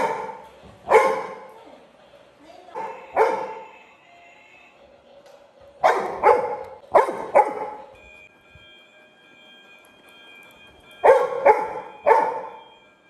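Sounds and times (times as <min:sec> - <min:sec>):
dog barking: 0:00.0 - 0:01.5, 0:02.7 - 0:03.7, 0:05.8 - 0:07.9, 0:11.0 - 0:12.6.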